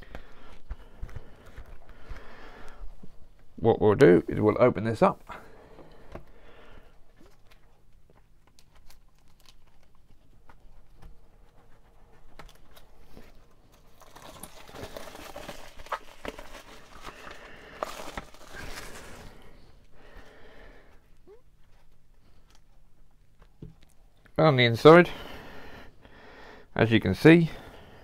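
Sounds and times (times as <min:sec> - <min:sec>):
plastic shrink-wrap tearing: 0:08.6 - 0:10.0, 0:13.8 - 0:19.4.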